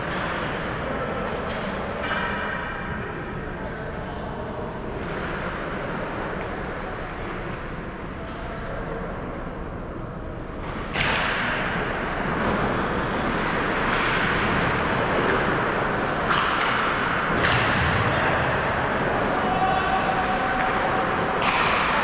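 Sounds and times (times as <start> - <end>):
sticks and puck clacking: 10.9 - 18.3, 18.9 - 22.0.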